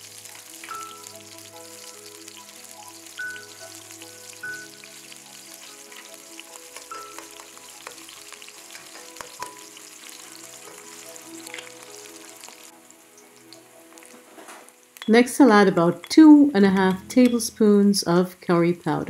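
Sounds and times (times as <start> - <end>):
vegetables sizzling in hot oil: 0.0 - 17.5.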